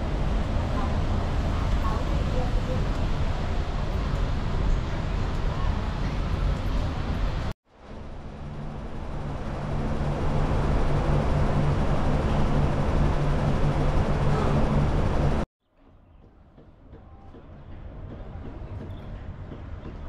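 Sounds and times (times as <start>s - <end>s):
broad rushing noise: 0.0s - 15.5s
vehicle running hum: 0.0s - 15.5s.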